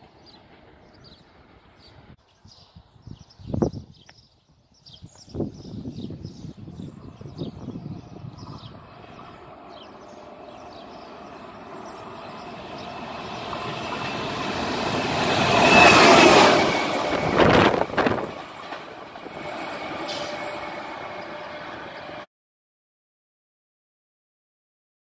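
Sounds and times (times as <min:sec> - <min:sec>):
electric locomotive passing: 0:00.0 - 0:02.2, 0:05.8 - 0:22.3
wheels clacking over rail joints: 0:09.6 - 0:22.2.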